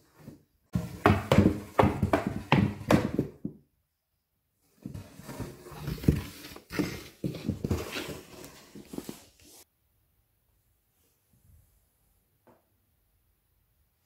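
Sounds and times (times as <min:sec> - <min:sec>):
cardboard box bumping on wooden floor: 0:00.8 - 0:03.6.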